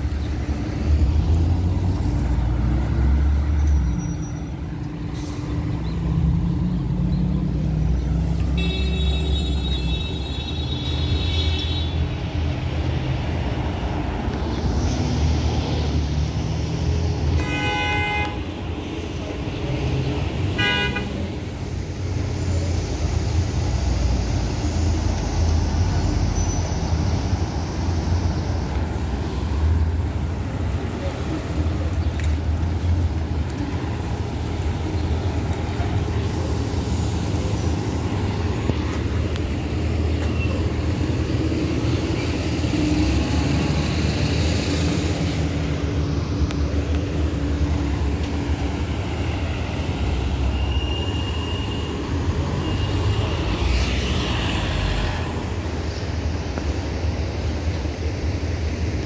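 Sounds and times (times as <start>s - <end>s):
traffic engines rumbling: 0.0s - 59.0s
car horn honks: 17.4s - 18.4s, 20.6s - 21.2s.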